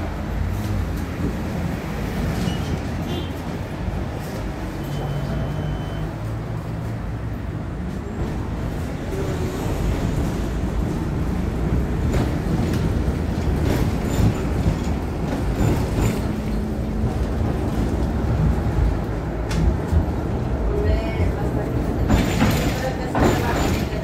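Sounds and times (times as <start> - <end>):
tram wheels and motors rumbling: 0.0 - 24.0.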